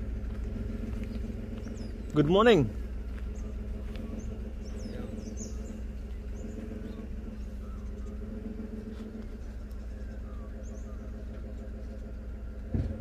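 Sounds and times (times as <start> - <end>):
motor humming: 0.0 - 13.0
faint bird chirps: 2.9 - 12.6.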